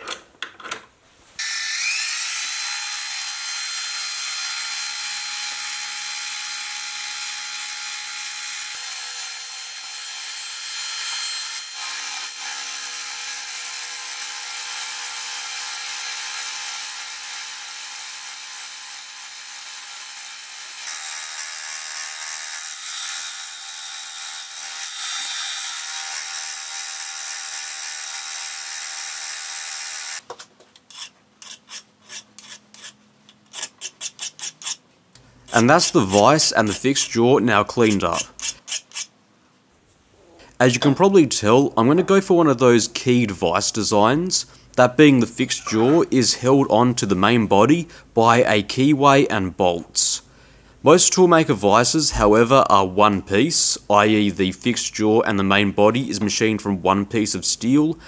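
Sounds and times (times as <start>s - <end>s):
hand file rasping on steel: 30.9s - 34.8s, 37.8s - 39.1s.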